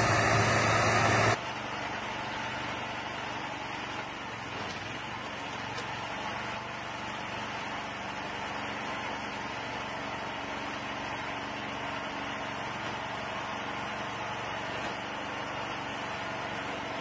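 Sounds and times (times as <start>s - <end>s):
small engine running steadily: 0.0s - 17.0s.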